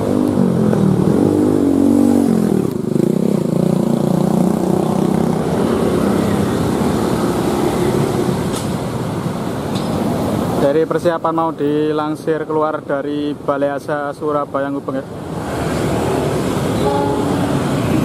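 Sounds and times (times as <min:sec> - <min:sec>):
diesel locomotive engine drone: 0:16.2 - 0:18.0.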